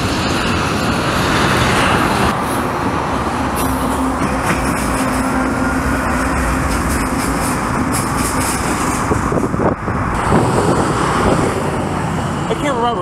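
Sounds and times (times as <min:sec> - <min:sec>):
wheels rolling on rails: 0:00.0 - 0:12.7
locomotive engines droning: 0:00.0 - 0:13.0.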